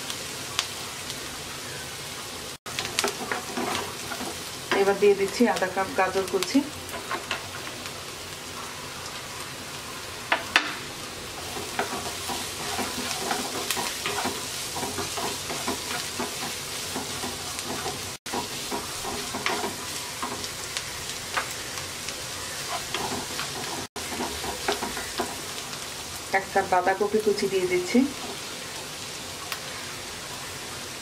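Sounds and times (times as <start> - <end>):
vegetables sizzling in hot oil: 0.0 - 31.0
wooden spoon stirring and scraping: 2.7 - 5.4, 6.2 - 7.7, 11.3 - 21.6, 22.4 - 25.6.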